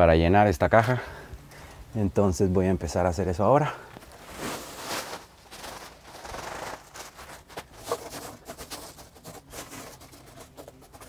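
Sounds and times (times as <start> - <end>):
gravel pouring and crunching: 3.8 - 11.0.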